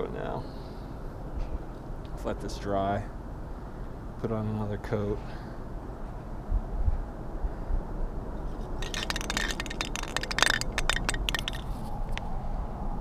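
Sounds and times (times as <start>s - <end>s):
low steady rumble: 0.1s - 13.0s
spray can rattling when shaken: 8.6s - 12.2s.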